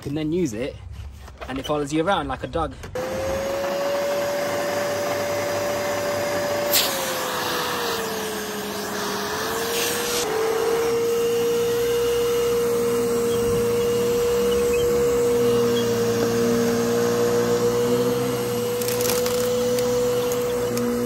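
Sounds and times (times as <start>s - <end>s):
vacuum cleaner motor whine: 3.0s - 21.0s
vacuum cleaner click: 13.6s - 21.0s.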